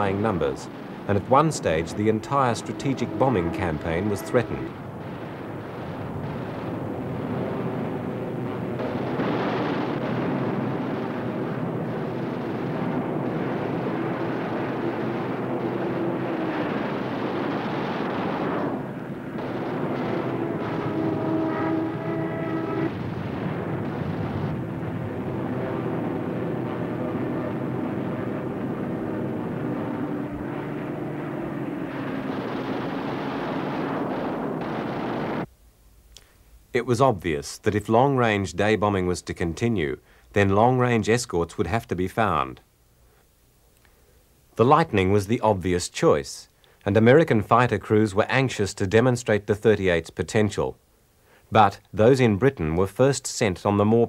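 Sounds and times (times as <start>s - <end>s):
propeller aircraft engines droning: 0.0s - 35.5s.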